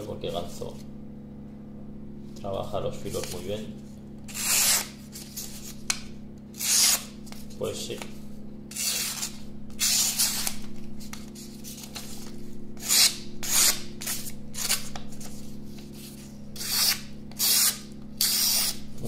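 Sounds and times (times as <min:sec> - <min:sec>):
knife slicing paper: 0:04.3 - 0:05.8, 0:06.6 - 0:07.5, 0:08.7 - 0:18.8.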